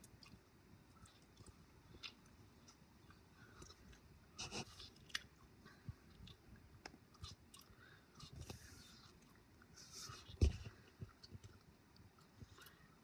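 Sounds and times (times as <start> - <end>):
soft rustles: 8.2 - 11.6.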